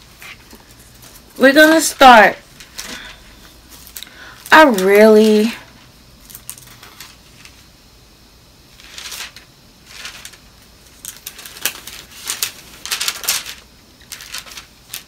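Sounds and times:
book pages rustling: 8.8s - 15.0s
pages flicking: 8.8s - 15.0s.

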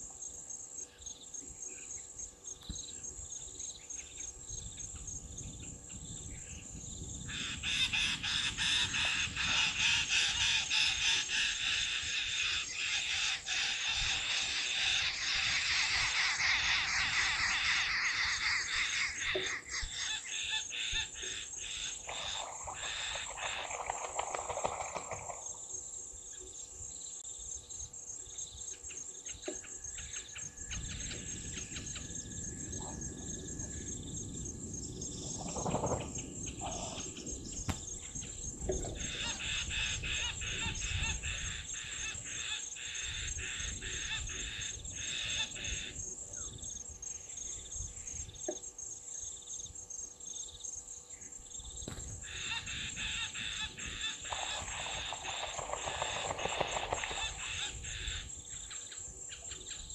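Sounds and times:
high-pitched insect drone: 0.3s - 28.8s, 36.2s - 59.4s
bird calls: 6.2s - 25.6s, 35.2s - 48.7s, 50.5s - 59.9s
goose splashing in water: 22.1s - 25.4s, 54.2s - 57.7s.

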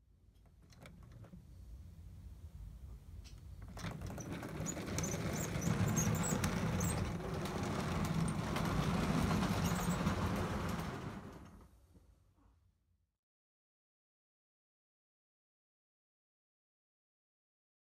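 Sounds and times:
model train rumbling on track: 3.6s - 11.7s.

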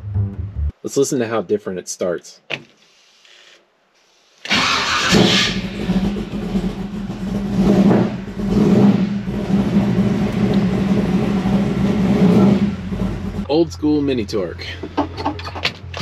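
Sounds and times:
engine lumpy idle and revs: 5.1s - 16.0s.

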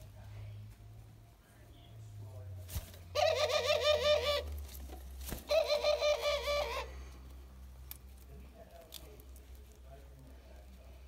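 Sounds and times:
dove cooing: 3.1s - 4.5s, 5.4s - 7.0s.

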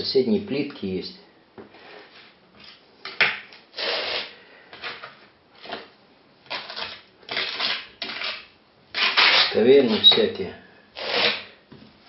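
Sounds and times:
trowel scraping adhesive: 3.7s - 5.8s, 6.5s - 10.3s, 11.0s - 11.5s.

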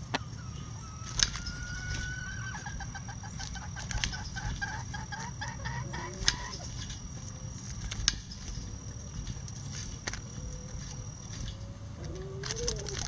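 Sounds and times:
chicken calling: 0.0s - 7.6s, 10.2s - 13.0s
chicken clucking: 0.8s - 6.9s
beaks pecking cabbage: 1.0s - 7.0s.

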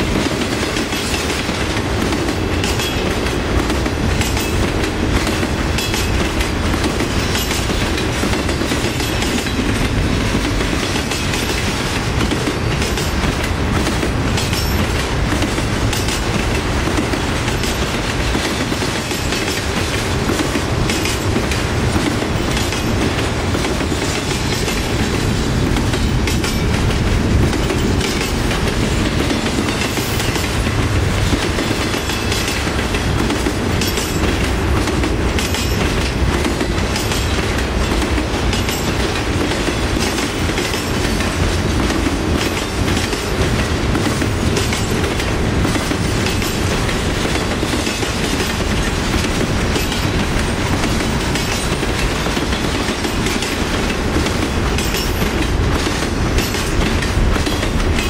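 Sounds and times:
freight train wheels rumbling on rail: 0.0s - 58.0s
wheels clicking over rail joints: 0.1s - 58.0s.

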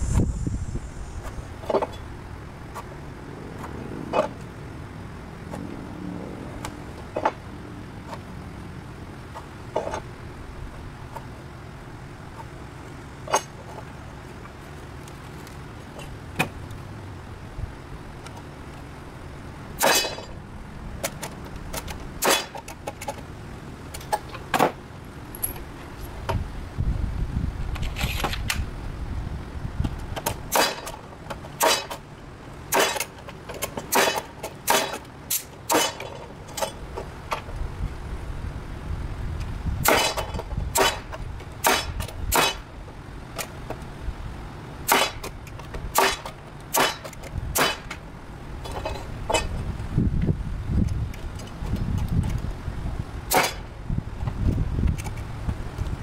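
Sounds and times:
low rumble: 0.0s - 2.4s
metal knocks and clinks: 25.3s - 25.7s.

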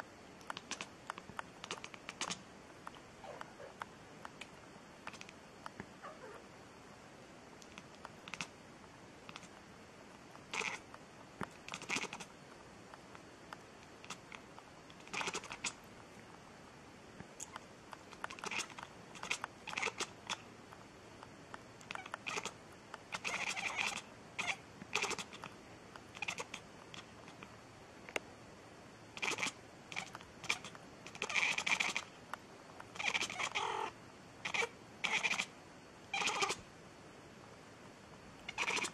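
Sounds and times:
cat meowing: 6.0s - 6.4s, 33.0s - 33.9s, 34.5s - 35.5s, 36.1s - 36.6s, 38.5s - 38.9s.

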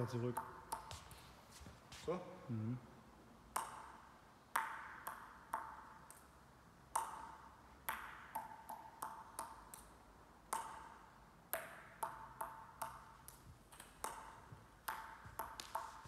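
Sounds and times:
table tennis ball bouncing on bat: 0.2s - 1.1s, 3.5s - 6.3s, 6.9s - 16.0s.

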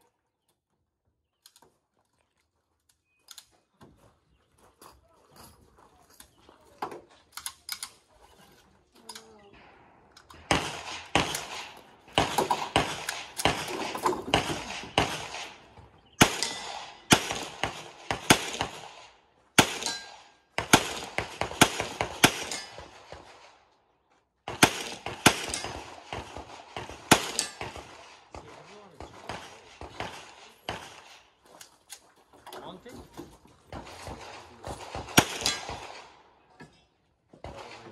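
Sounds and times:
pistol shots: 9.5s - 23.6s, 24.5s - 31.3s, 33.7s - 36.3s.

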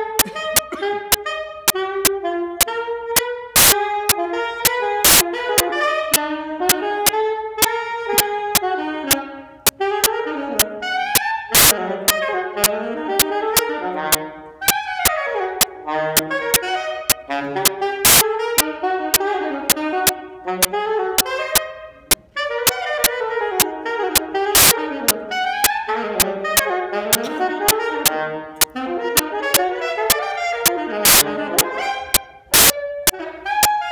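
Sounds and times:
saxophone blues solo: 0.0s - 33.9s
sharp clicks: 3.6s - 3.8s, 17.1s - 18.2s, 30.1s - 31.2s, 32.1s - 32.8s.

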